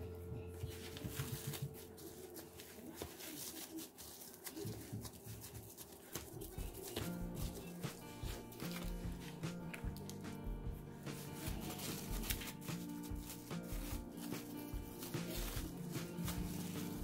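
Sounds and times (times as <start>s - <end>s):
plastic wrap crinkling: 0.5s - 17.0s.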